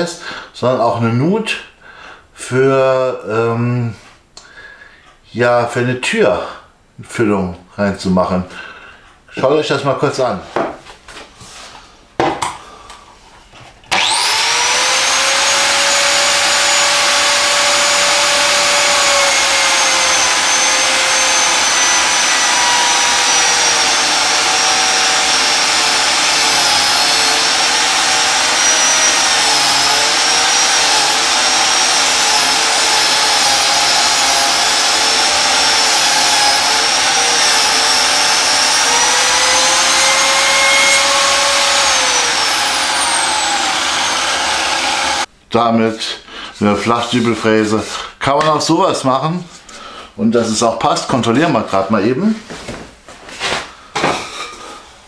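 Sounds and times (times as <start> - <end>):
biscuit joiner motor whining: 13.9 - 45.3
dust extractor running: 13.9 - 45.3.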